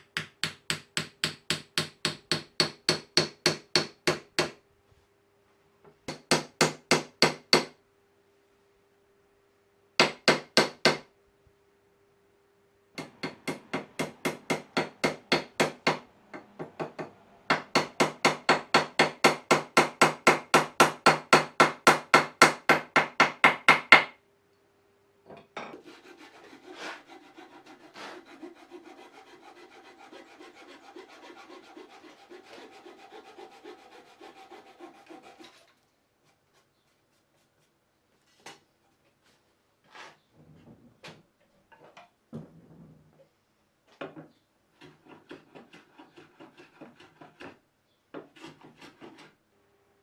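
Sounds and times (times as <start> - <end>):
hand filing strokes: 25.8 - 35.7, 44.8 - 47.6, 48.2 - 49.4.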